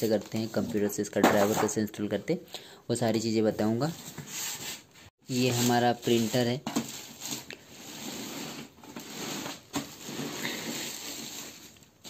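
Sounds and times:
plastic bag rustling and crinkling: 4.4s - 12.0s.

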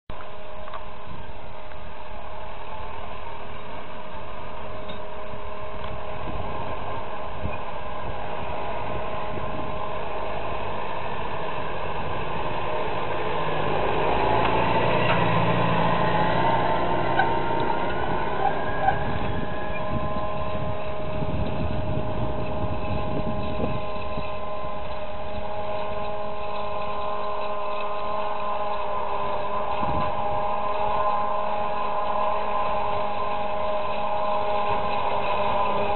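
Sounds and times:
high machine whine: 0.1s - 35.9s
tractor engine drone: 0.1s - 35.9s.

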